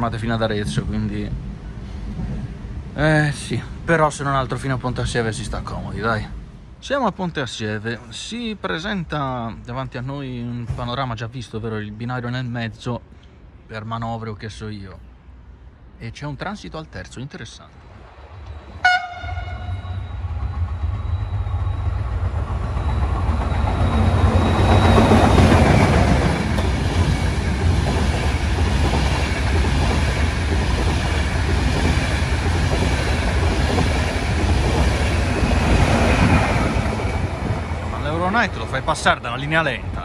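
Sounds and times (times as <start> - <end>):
train wheels rumbling on rails: 0.0 - 6.6, 18.0 - 40.0
train horn toot: 18.8 - 20.2.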